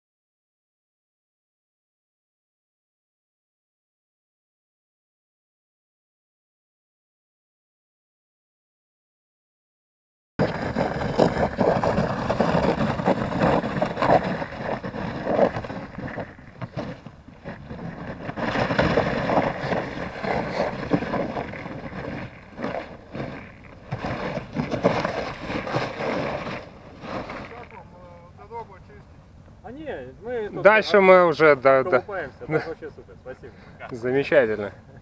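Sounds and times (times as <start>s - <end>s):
thin ice cracking and crunching: 10.4s - 27.8s
motorboat motor running: 10.4s - 28.9s.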